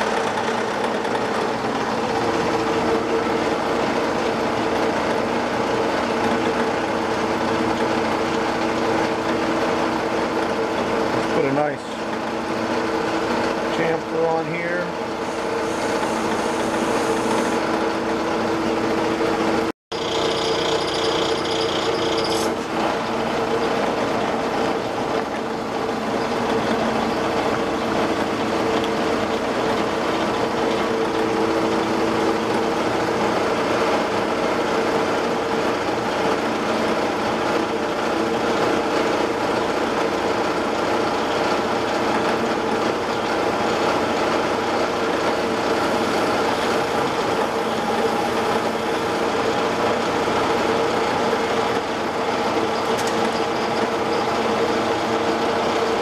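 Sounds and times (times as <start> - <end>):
lathe motor humming: 0.0 - 56.0
high ringing tone from cutting: 19.9 - 22.6.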